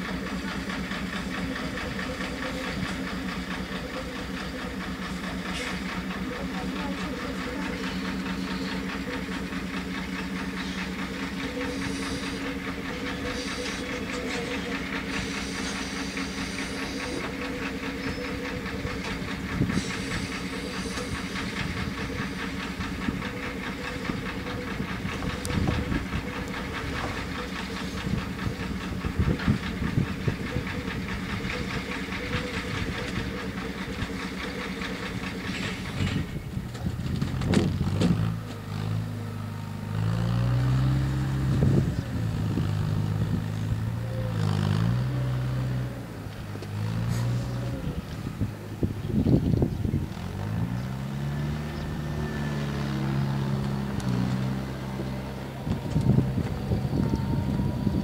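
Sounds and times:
steam hissing: 0.1s - 36.2s.

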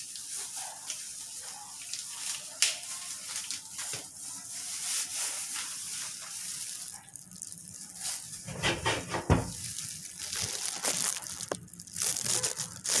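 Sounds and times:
plastic glove rustling: 0.0s - 13.0s
plastic clatter: 8.5s - 9.6s.

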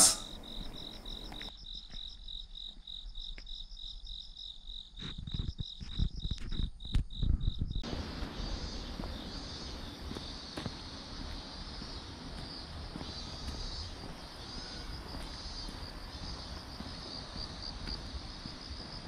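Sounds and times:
soft footsteps: 0.0s - 1.5s, 7.8s - 19.0s
cricket chirping: 0.0s - 19.0s
steady outdoor hiss: 0.0s - 19.0s.

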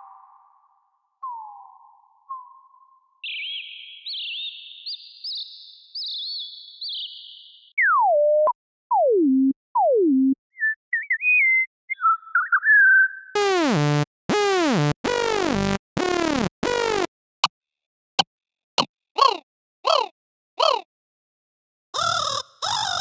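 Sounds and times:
synthesized warbling chirp: 7.8s - 17.1s
loud buzzy synthesized calls: 13.4s - 17.1s.

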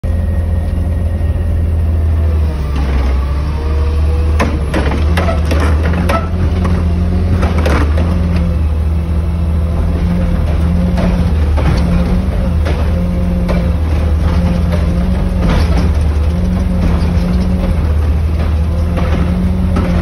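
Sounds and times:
diesel engine running: 0.0s - 20.0s
hydraulic arm whine: 0.0s - 20.0s
metal clanks and bangs: 4.3s - 8.8s, 9.7s - 20.0s.

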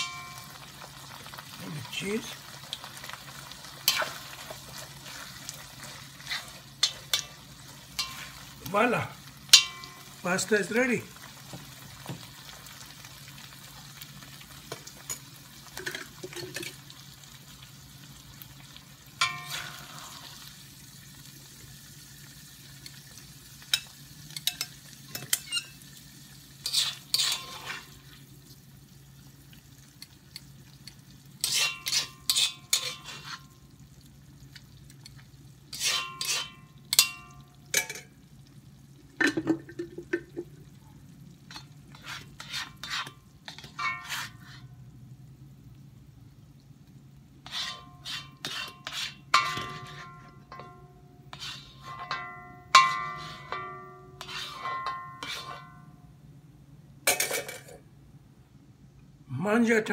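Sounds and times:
metal spatula scraping a wok: 3.0s - 8.6s, 19.2s - 20.5s, 26.6s - 28.0s, 31.4s - 33.5s, 35.7s - 37.2s, 41.5s - 44.8s, 47.4s - 55.9s.

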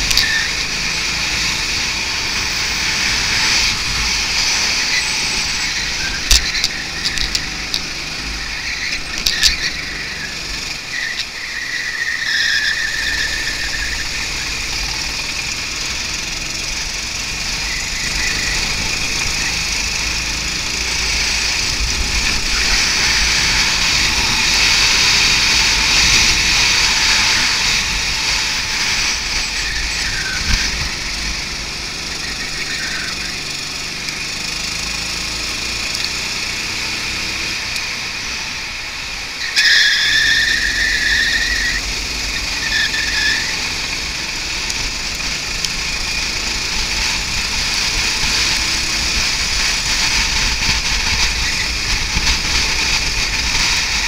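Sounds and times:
high squeal: 0.0s - 35.7s, 37.2s - 44.5s
go-kart engine racing: 0.0s - 54.0s.

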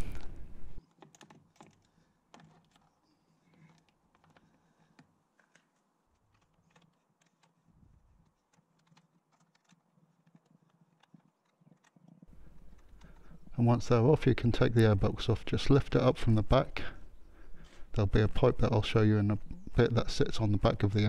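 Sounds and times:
hex key clicking on bolts: 0.8s - 2.9s, 3.5s - 13.4s.

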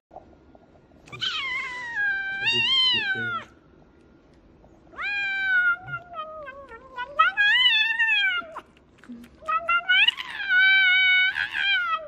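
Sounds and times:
cat yowling: 1.1s - 3.6s, 4.9s - 8.7s, 9.4s - 12.0s.

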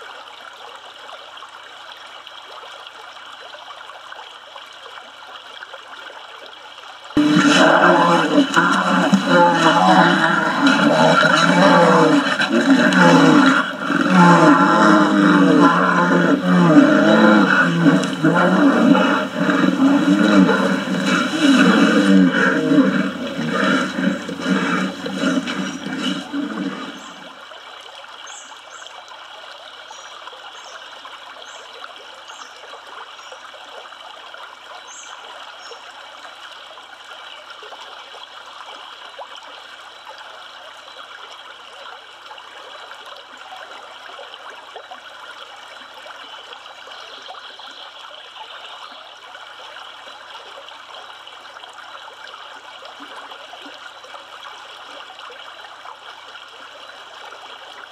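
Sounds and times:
river water flowing: 0.0s - 57.9s
bears roaring and growling: 7.2s - 27.3s.

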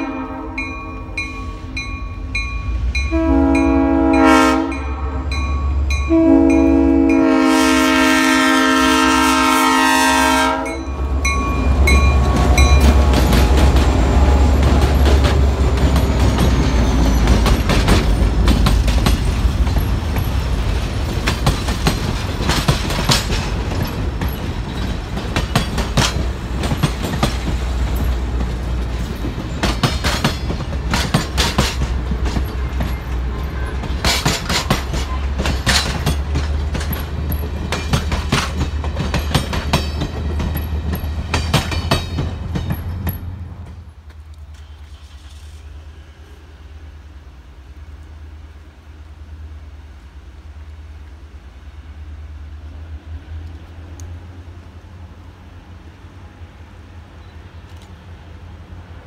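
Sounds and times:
locomotive air horn: 0.0s - 1.3s, 3.1s - 11.0s
locomotive engine rumble: 0.0s - 59.0s
train wheels clacking on rails: 10.9s - 43.9s.

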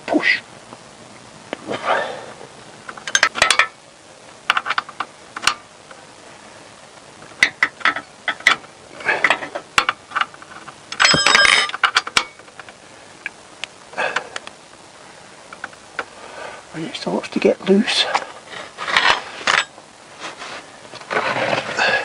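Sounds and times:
metal spanners clinking: 3.0s - 3.8s, 10.9s - 12.4s
ringing metallic clang: 11.0s - 12.3s.

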